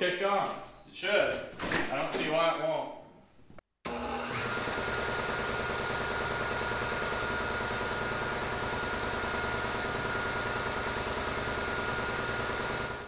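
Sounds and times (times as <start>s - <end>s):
air compressor running: 3.9s - 13.0s.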